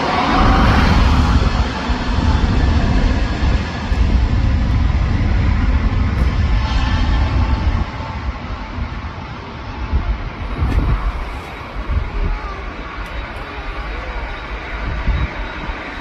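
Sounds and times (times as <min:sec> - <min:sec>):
jet engines at take-off: 0:00.0 - 0:16.0.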